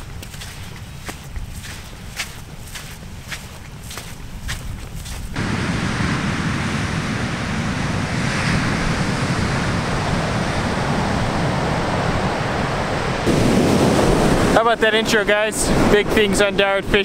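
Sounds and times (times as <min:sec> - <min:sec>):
footsteps in sand: 0:00.0 - 0:05.4
wind buffeting microphone: 0:00.0 - 0:17.0
ocean surf rushing: 0:05.4 - 0:17.0.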